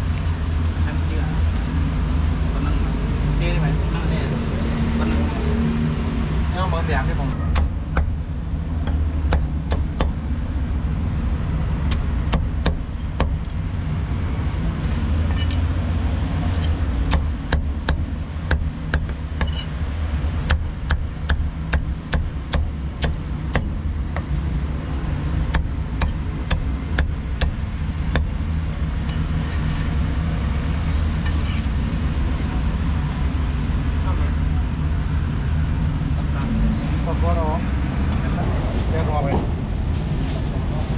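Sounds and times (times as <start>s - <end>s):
low background rumble: 0.0s - 40.9s
cleaver chopping on wooden block: 7.5s - 8.2s, 8.8s - 10.2s, 11.9s - 13.4s, 17.1s - 19.7s, 20.4s - 24.3s, 25.5s - 28.4s.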